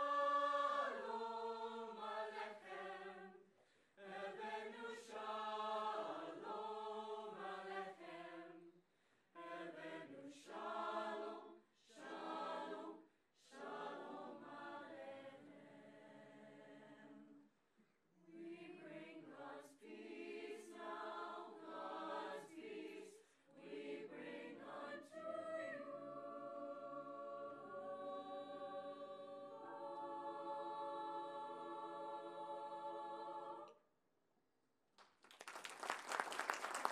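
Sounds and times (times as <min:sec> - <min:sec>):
choir singing a cappella: 0:00.0 - 0:17.6, 0:18.2 - 0:33.8
singers breathing: 0:03.6 - 0:04.0, 0:08.8 - 0:09.4.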